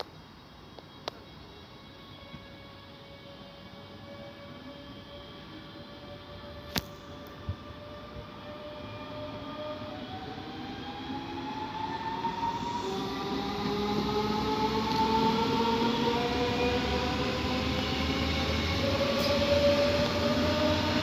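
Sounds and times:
electric train motors whining: 0.7 - 21.0
wheels rumbling on rail: 12.6 - 21.0.

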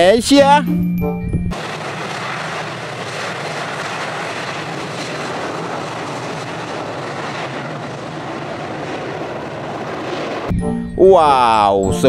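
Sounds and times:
jet engines at takeoff thrust: 1.5 - 10.6.

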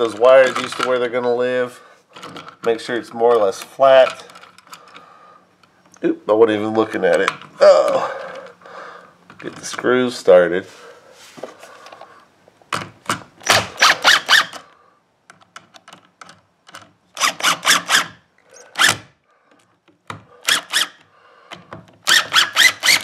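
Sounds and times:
cordless driver running screws: 13.4 - 14.6, 17.2 - 19.1, 20.4 - 21.0, 22.0 - 23.0.

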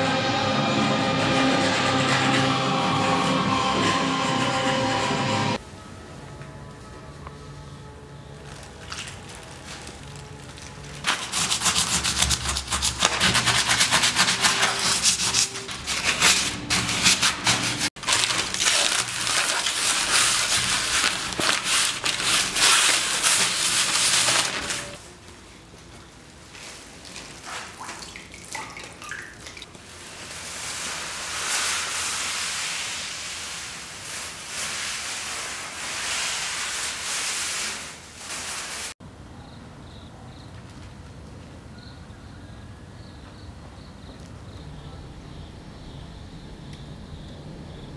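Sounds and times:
paper and plastic rustling: 8.4 - 28.3, 29.6 - 39.0
sponge scrubbing stone: 11.1 - 25.0.

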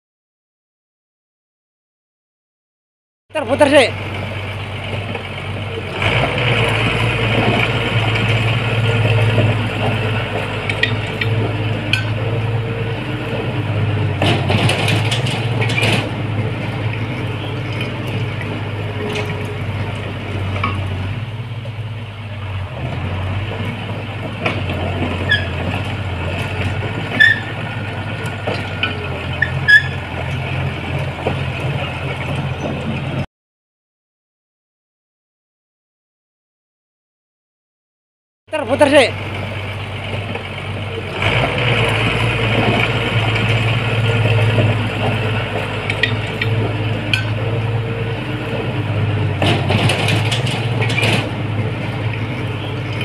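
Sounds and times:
bulldozer diesel engine under load: 3.3 - 33.3, 38.5 - 53.0
machine squeaks and clicks: 10.7 - 12.2, 24.4 - 27.6, 28.2 - 30.4, 45.8 - 47.4, 49.4 - 51.3.

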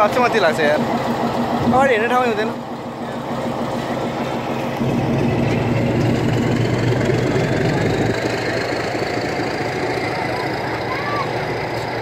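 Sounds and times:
diesel locomotive engine running: 0.0 - 12.0.

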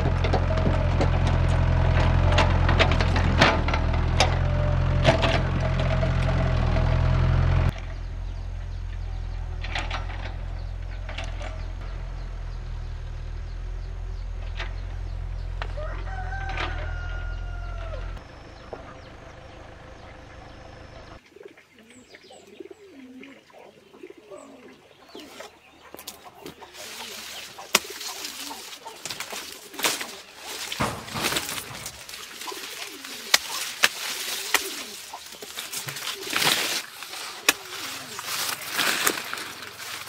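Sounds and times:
dove cooing: 21.2 - 40.0
sugarcane leaves rustling: 25.2 - 40.0
cane stalks cracking: 26.0 - 40.0.

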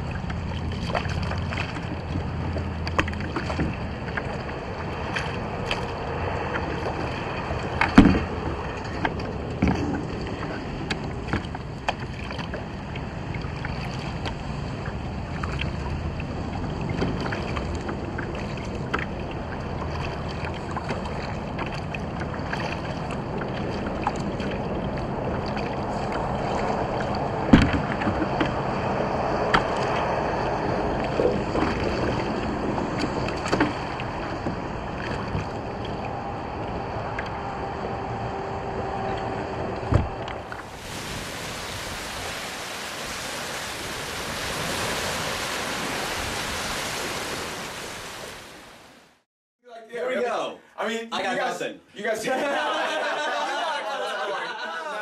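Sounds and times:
water splashing against kayak hull: 0.0 - 49.2
knocks on hull: 7.8 - 8.4, 27.5 - 28.6.

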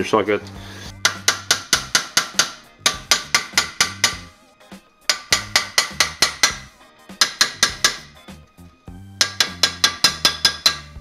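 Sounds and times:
hammer blows on brake disc: 1.0 - 4.3, 5.1 - 8.2, 9.2 - 11.0
metal disc ringing: 5.1 - 8.1, 9.2 - 11.0.

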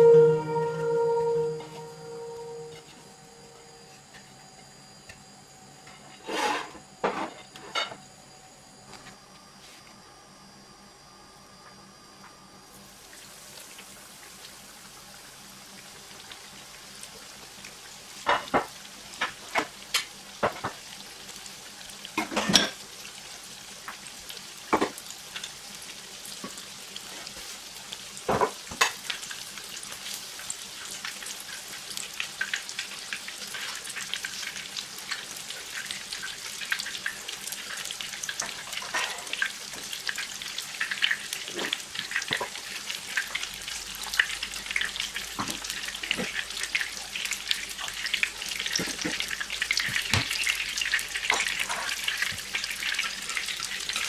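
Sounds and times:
cutlet sizzling in hot oil: 12.7 - 54.0.

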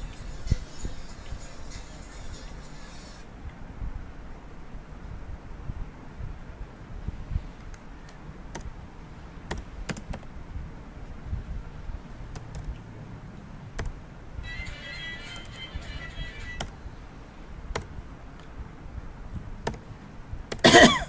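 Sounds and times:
keyboard key clicks: 8.5 - 8.7, 9.5 - 10.3, 17.7 - 17.9
high-pitched musical sound: 14.4 - 16.7.

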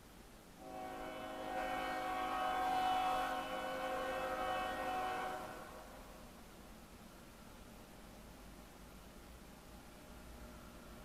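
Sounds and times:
locomotive air horn: 0.6 - 6.0.

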